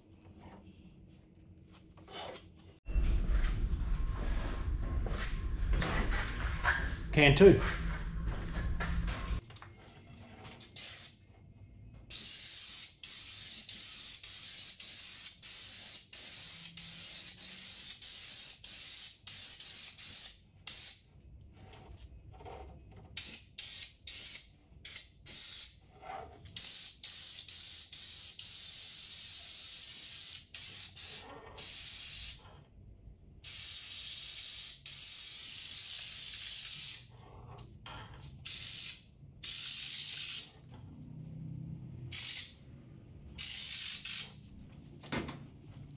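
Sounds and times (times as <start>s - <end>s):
spray gun hissing bursts: 10.8s - 11.1s, 12.1s - 21.0s, 23.2s - 25.8s, 26.6s - 32.4s, 33.4s - 37.1s, 38.5s - 40.5s, 43.4s - 44.3s.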